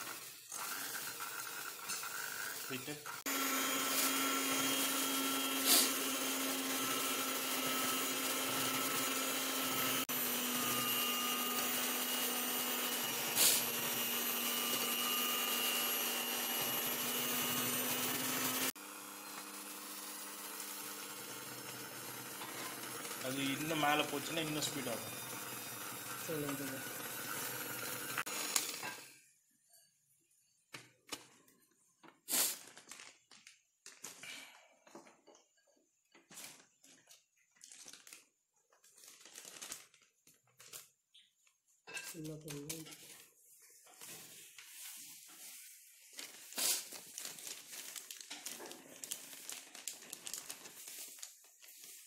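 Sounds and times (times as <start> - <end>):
hand mixer motor whir: 0.0 - 29.2
plastic packet crinkling: 32.5 - 34.2, 36.3 - 41.3, 46.1 - 52.0.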